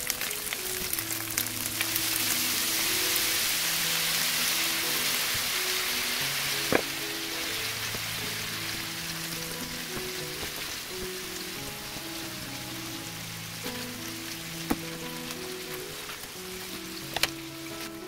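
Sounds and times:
meat sizzling in frying pan: 0.0 - 18.0
soft background music: 0.0 - 18.0.

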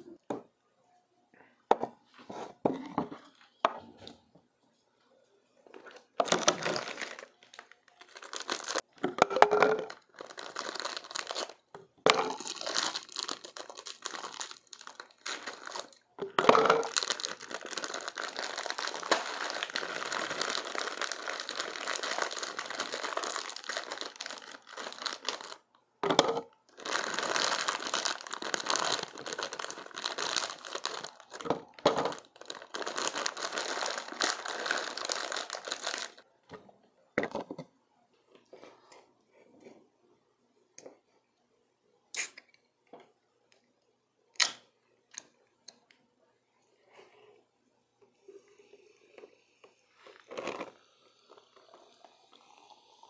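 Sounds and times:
plastic bag crinkling: 5.8 - 36.2, 50.0 - 53.0.

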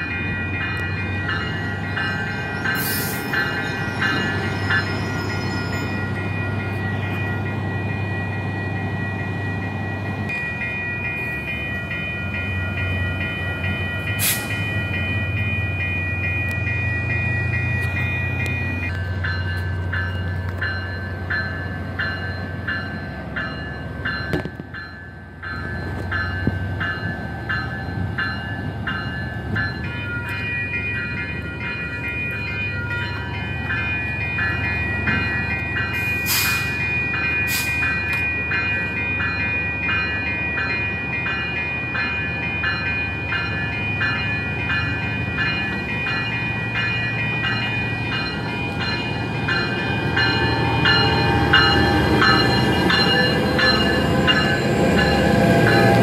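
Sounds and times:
diesel locomotive engine hum: 0.0 - 56.0.

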